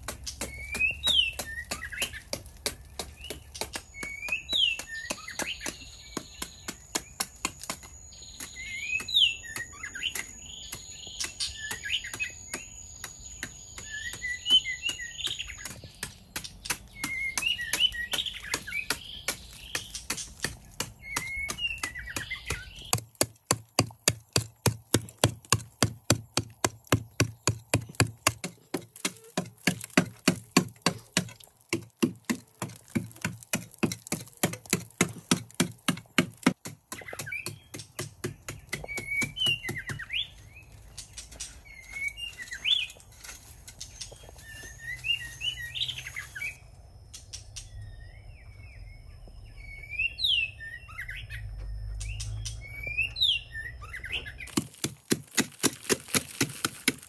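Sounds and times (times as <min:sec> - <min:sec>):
digging tool chopping clay: 0:00.0 - 0:40.4, 0:54.5 - 0:57.0
small birds chirping: 0:00.0 - 0:57.0.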